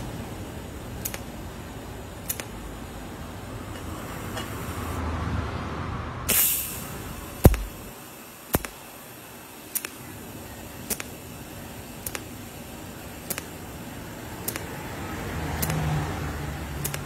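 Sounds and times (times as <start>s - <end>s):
welding arc clicks: 0.7s - 1.5s, 2.1s - 2.7s, 6.3s - 17.0s
brief hiss: 6.3s - 7.6s.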